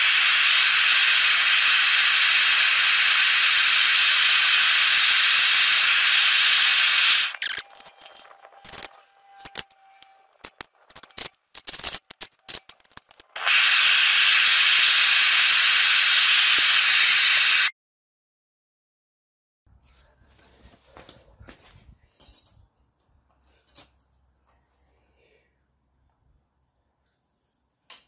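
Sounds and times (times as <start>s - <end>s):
gas burner hissing: 0.0s - 7.4s, 13.4s - 17.7s.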